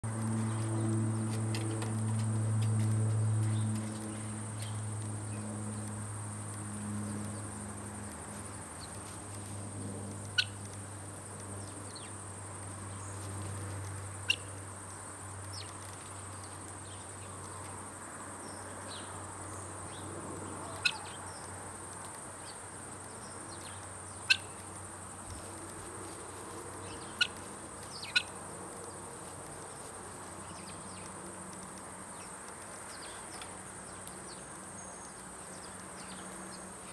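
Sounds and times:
bird chirps: 20.6 - 21.5, 23.5 - 24.6, 26.8 - 28.3.

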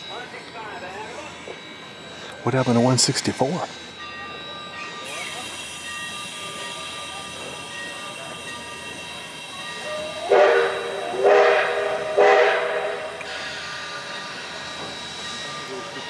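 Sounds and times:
locomotive horn blasts: 9.9 - 13.3.

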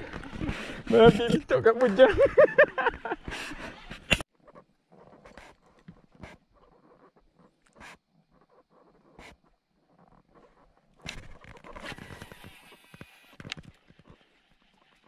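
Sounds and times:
man's voice: 0.9 - 2.3.

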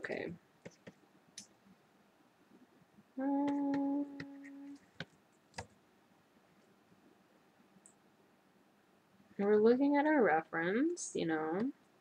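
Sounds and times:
person humming a note: 3.2 - 4.8.

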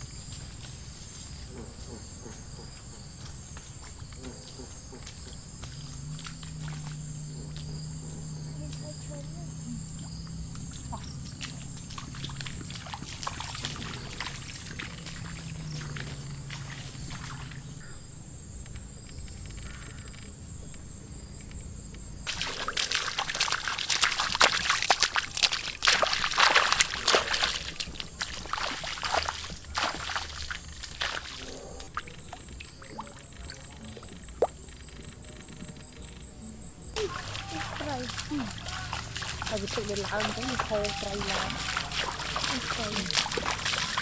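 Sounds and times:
water splashing: 3.2 - 17.9, 22.2 - 35.3, 36.9 - 44.0
water sloshing and pouring: 4.3 - 9.2, 9.8 - 17.8, 22.3 - 35.1, 37.0 - 44.0.

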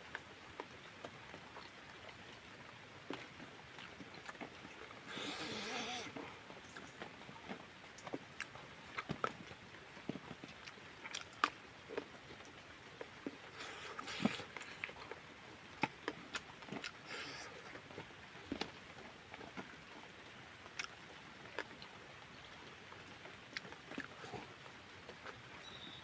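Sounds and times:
mouth clicks and lip smacks: 10.5 - 15.2, 15.8 - 17.8
person chewing: 10.5 - 15.2, 15.8 - 18.7, 20.8 - 21.8, 23.5 - 24.5.

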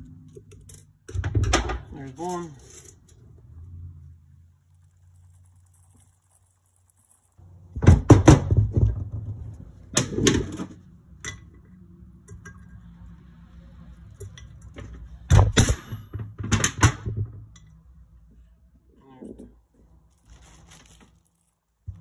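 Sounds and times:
metal knocks and clatter: 7.8 - 12.8.

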